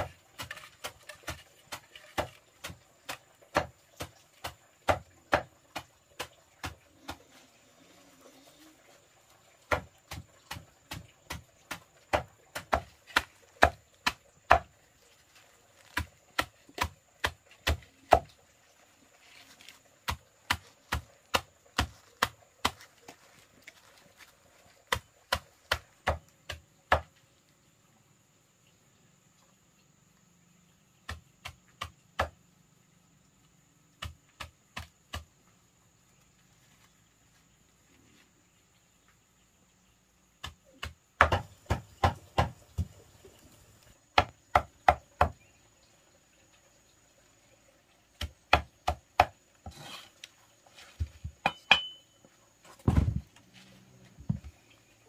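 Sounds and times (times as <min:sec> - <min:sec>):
blade chopping on wooden board: 0:40.4 - 0:42.9.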